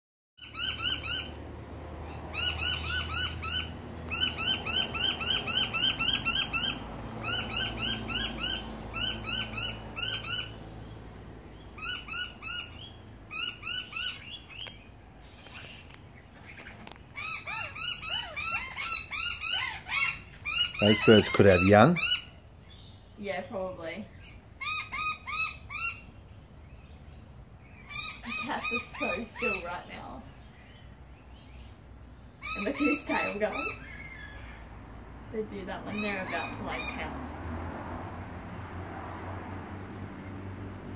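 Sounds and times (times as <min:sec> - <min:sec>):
birds calling in sharp notes: 0:00.4 - 0:37.5.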